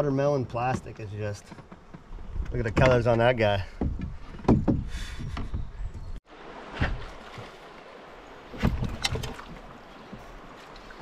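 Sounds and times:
faint moving water: 0.0 - 11.0
paddle strokes in water: 6.5 - 11.0.

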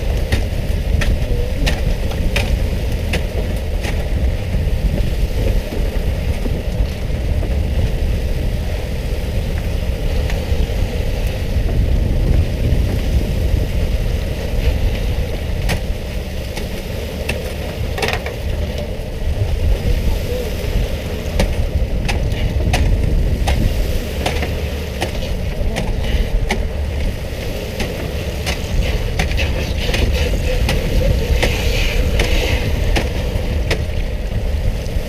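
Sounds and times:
boat engine running: 0.0 - 35.0
water spray splashing: 13.9 - 35.0
sharp knocks: 21.4 - 26.7.

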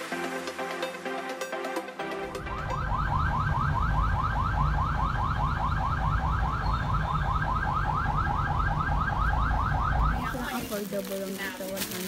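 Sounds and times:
electronic alarm chirping: 2.6 - 10.5.

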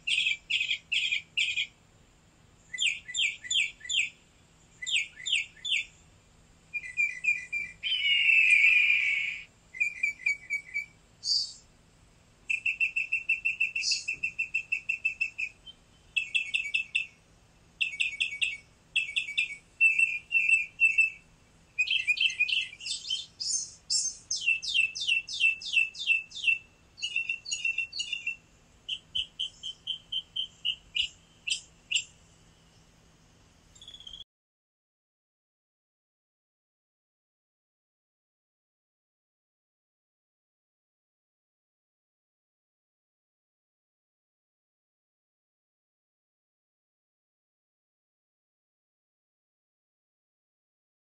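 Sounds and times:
songbirds chirping and trilling: 0.0 - 34.2.

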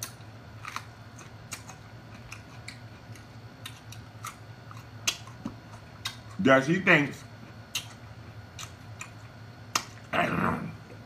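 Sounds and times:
pepper being bitten and chewed: 0.0 - 6.4, 7.7 - 10.1.

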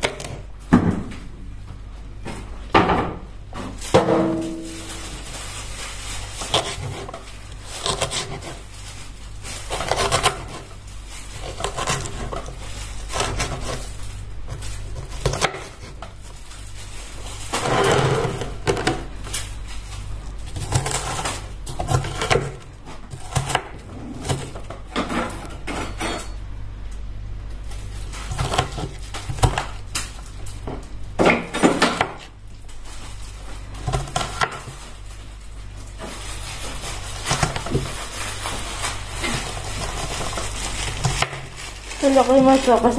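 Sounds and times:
steady low hum: 0.0 - 42.9
utensils and cookware clattering: 20.5 - 26.4.

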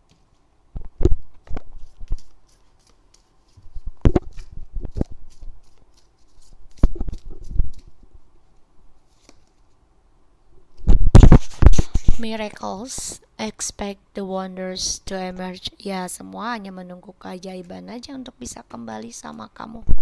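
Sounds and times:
cards rustling: 1.4 - 8.1, 9.0 - 9.8.

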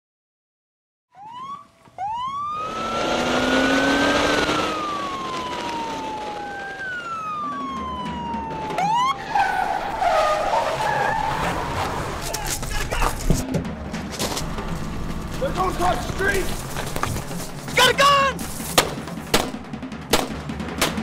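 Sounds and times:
police siren wailing: 1.1 - 13.2
car noise: 1.2 - 21.0.

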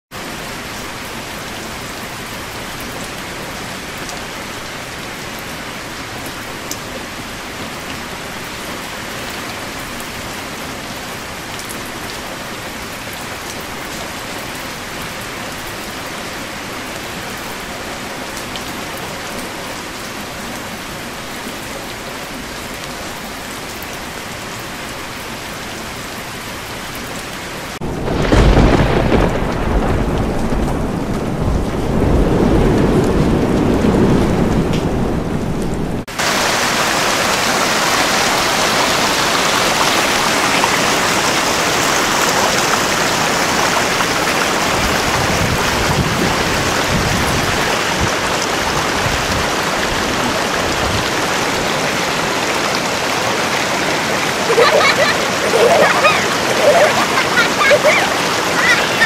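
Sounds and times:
steady rain falling: 0.1 - 59.0
low rumble of thunder: 27.8 - 36.1.

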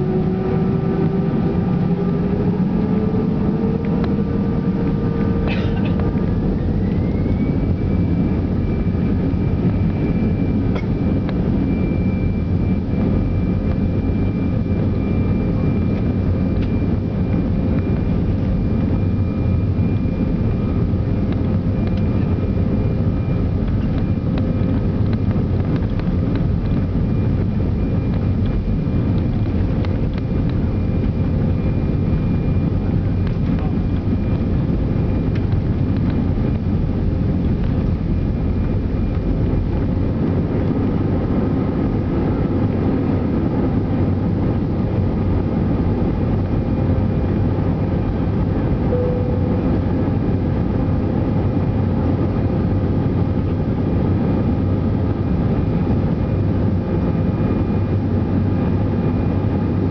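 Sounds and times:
jet engine rumble and whine: 0.0 - 59.9.

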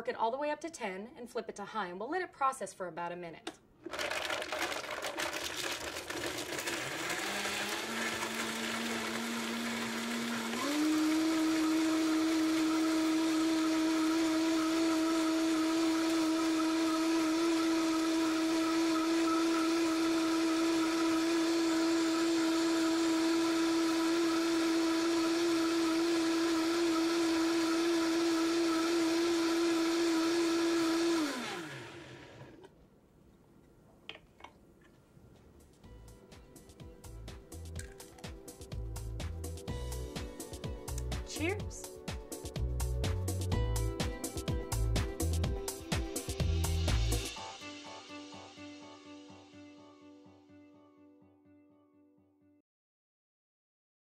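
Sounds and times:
blender motor whining: 3.8 - 32.7.

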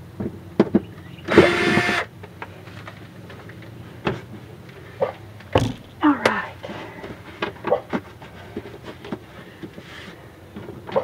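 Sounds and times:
cordless drill running: 1.3 - 2.1.

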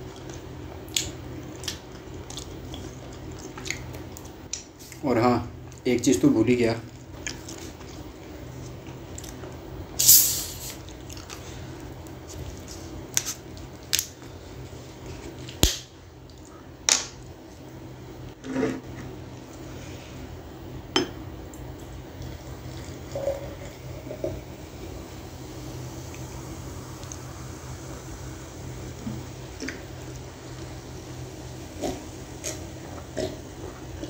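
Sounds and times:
low steady hum: 0.0 - 34.0
bottle opening hiss: 10.0 - 10.8.

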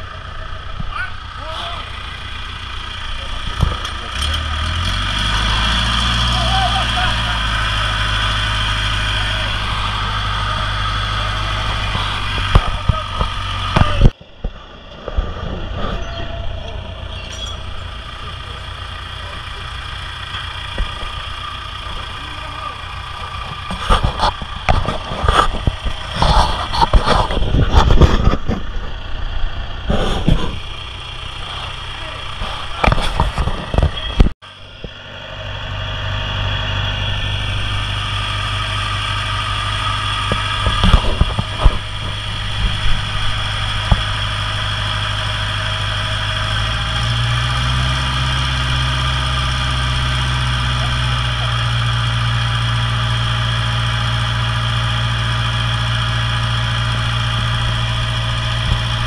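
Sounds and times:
large engine running: 0.0 - 59.0
knocks and clatter: 3.3 - 4.9, 11.5 - 18.5, 20.3 - 22.3, 23.1 - 29.0, 31.4 - 34.4, 40.2 - 44.5.

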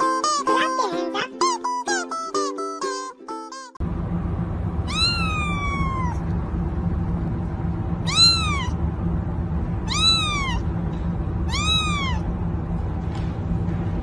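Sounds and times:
kitten meowing: 4.9 - 6.2, 8.0 - 8.8, 9.8 - 10.7, 11.5 - 12.3.

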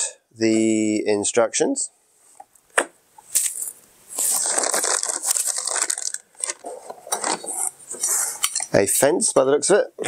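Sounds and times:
plastic packaging crinkling: 3.3 - 7.8.

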